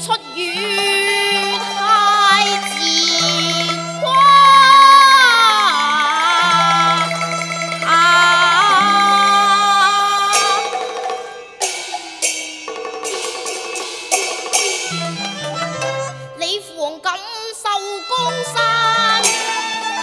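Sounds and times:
child singing opera: 0.0s - 11.3s, 16.3s - 20.0s
opera percussion strikes: 0.0s - 16.8s, 18.0s - 20.0s
bowed string accompaniment: 0.0s - 20.0s.

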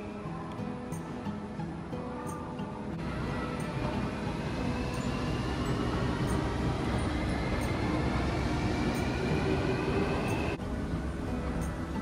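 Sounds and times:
faint high whine: 0.0s - 12.0s
escalator machinery rumble: 3.0s - 12.0s.

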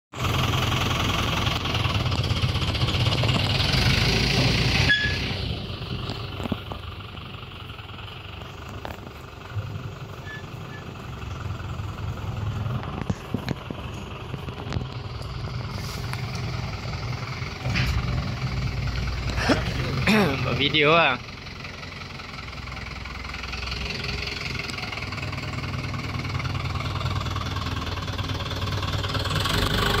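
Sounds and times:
tractor diesel engine running: 0.1s - 30.0s
brief squeal: 4.8s - 5.4s, 10.2s - 11.0s.

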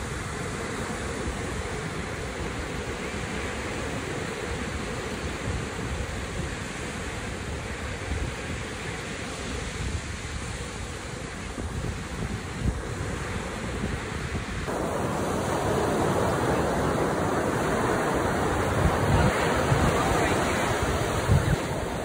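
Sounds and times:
wind buffeting microphone: 9.5s - 22.0s
ocean surf breaking: 11.2s - 22.0s.

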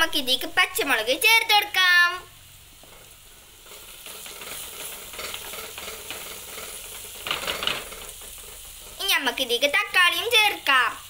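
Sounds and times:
onions sizzling in oil: 0.0s - 11.0s
spatula scraping pan: 2.7s - 9.2s.

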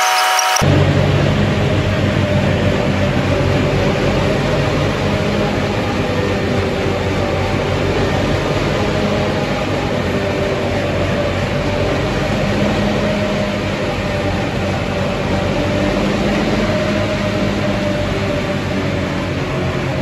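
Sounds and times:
faint gearbox whine: 0.0s - 0.8s
mechanical drivetrain drone: 0.0s - 20.0s.

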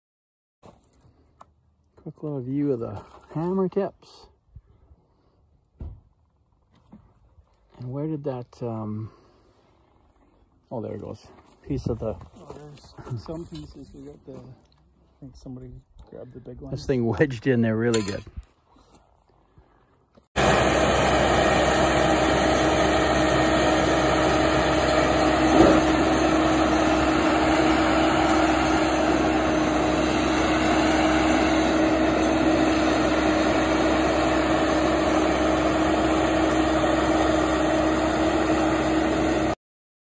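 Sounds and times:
short knock: 5.8s - 6.1s
mulcher engine running: 20.4s - 39.6s.

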